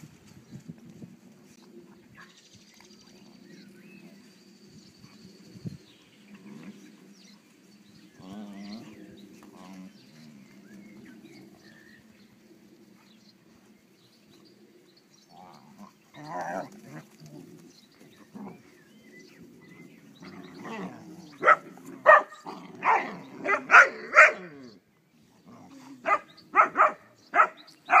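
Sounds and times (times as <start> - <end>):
dogs growling: 6.1 - 13.2, 15.2 - 24.8, 25.4 - 26.6
dogs barking sharply: 21.4 - 24.5, 26.0 - 28.0.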